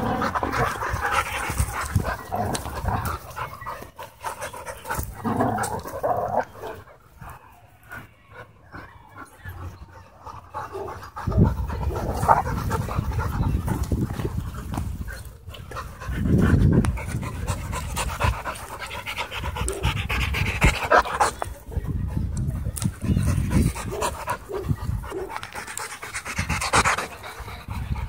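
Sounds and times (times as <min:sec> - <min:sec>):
dog panting: 0:08.3 - 0:28.0.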